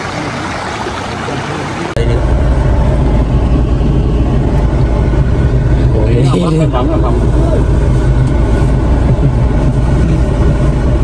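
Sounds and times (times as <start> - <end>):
rushing stream water: 0.0 - 2.2
truck engine rumble: 0.0 - 11.0.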